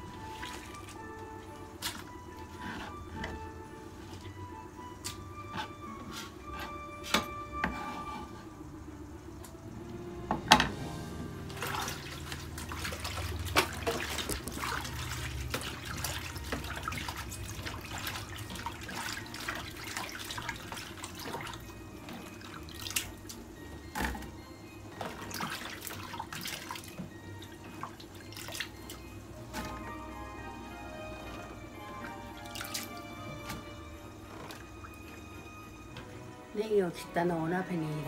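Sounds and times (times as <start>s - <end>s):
hands splashing in water: 11.6s - 21.6s, 32.4s - 33.0s.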